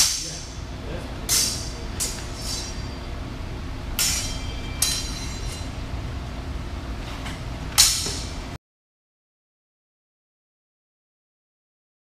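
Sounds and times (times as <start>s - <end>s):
sabre blades clashing: 0.0s - 0.6s, 1.3s - 3.0s, 3.9s - 5.8s, 7.8s - 8.4s.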